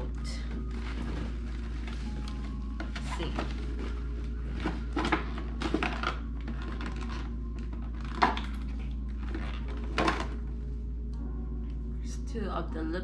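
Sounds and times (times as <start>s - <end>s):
steady low hum: 0.0s - 13.0s
plastic packaging clicking: 4.8s - 10.4s.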